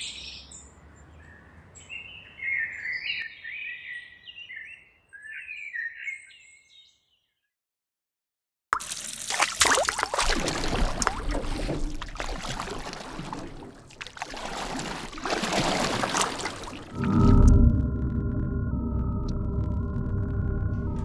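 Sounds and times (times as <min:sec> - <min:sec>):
water sloshing and splashing: 0:08.8 - 0:17.8.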